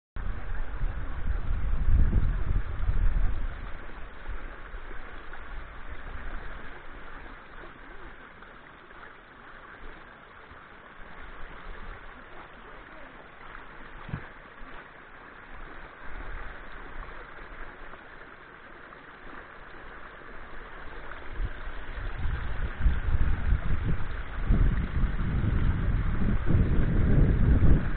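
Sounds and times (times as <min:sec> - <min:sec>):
wind buffeting microphone: 0:00.2 - 0:07.2, 0:21.0 - 0:27.9.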